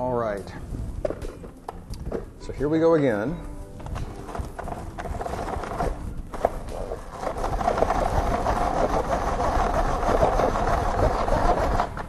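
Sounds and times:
hand-crank chopper whirring: 3.9 - 12.0.

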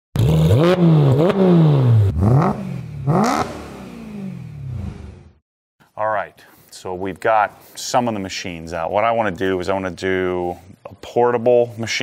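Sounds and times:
car engine revving hard: 0.2 - 5.3.

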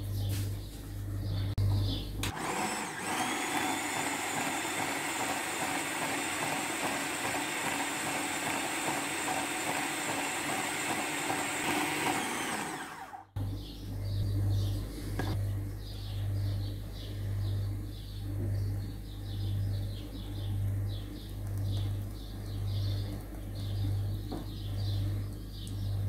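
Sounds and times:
food processor motor running: 2.2 - 13.4.

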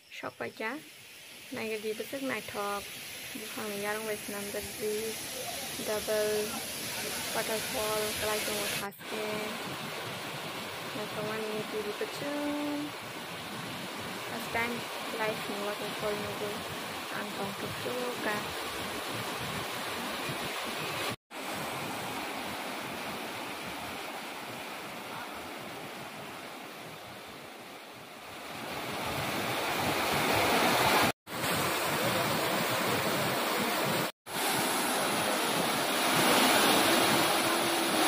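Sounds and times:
waterfall rushing over rocks: 2.8 - 11.8, 28.4 - 38.0.

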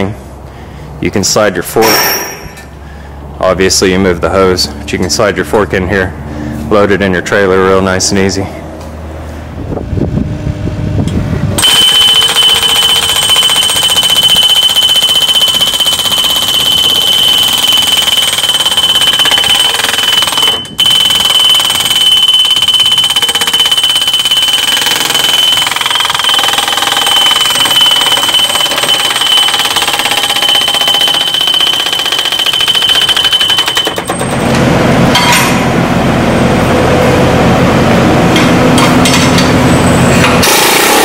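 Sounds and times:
post driver hammering steel: 1.8 - 2.7, 11.6 - 35.8.

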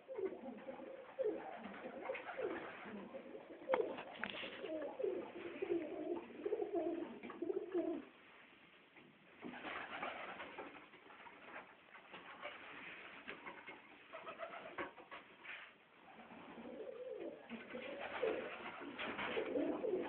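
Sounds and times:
pigeons cooing: 0.0 - 8.1, 16.1 - 20.0.

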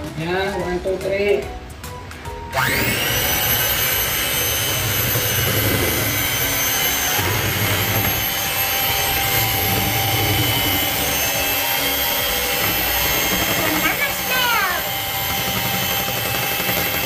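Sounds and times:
electric hand mixer whining: 2.2 - 17.0.

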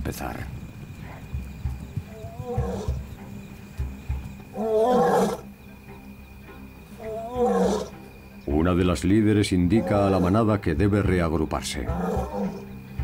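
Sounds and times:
lioness roaring: 4.5 - 5.4, 7.0 - 7.9, 11.8 - 12.6.

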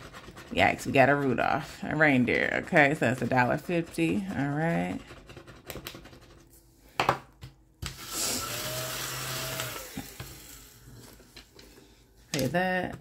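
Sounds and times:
small vacuum whining: 7.9 - 11.2.

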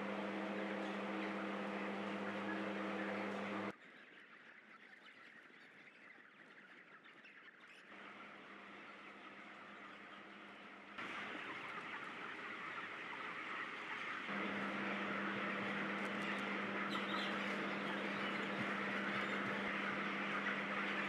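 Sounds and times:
chickens calling: 0.0 - 3.7, 4.9 - 21.0
steady low hum: 0.0 - 3.7, 7.9 - 11.6, 14.2 - 21.0.

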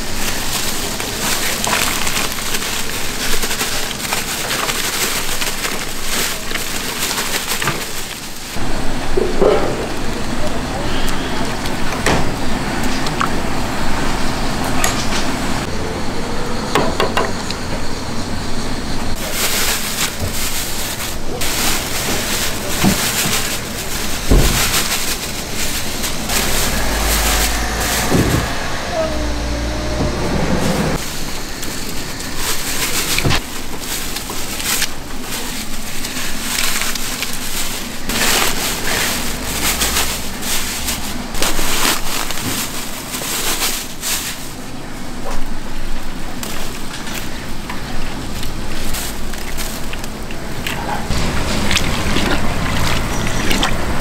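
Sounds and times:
background voices: 20.4 - 33.4.

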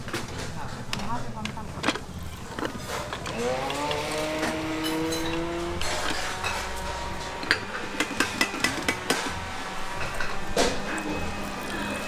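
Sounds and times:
kitchen utensils clinking: 0.0 - 12.0
vehicle engine revving: 3.3 - 12.0.

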